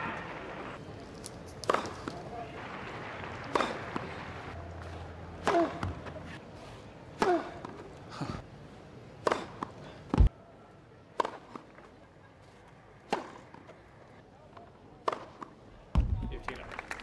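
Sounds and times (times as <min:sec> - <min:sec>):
racket striking tennis ball: 0:01.6 - 0:02.2, 0:05.4 - 0:06.1, 0:09.2 - 0:10.3, 0:13.1 - 0:13.6.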